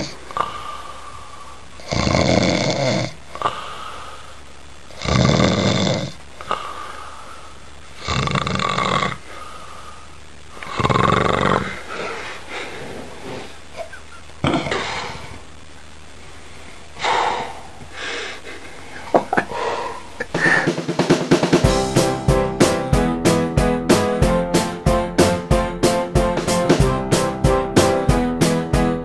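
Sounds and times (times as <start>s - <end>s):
quiet breathing: 0.0s - 2.0s, 3.1s - 4.9s, 6.1s - 8.1s, 9.1s - 10.9s, 11.5s - 13.8s, 14.7s - 20.8s
man snoring: 1.8s - 3.6s, 4.9s - 6.7s, 8.0s - 9.3s, 10.6s - 11.8s, 17.0s - 18.0s.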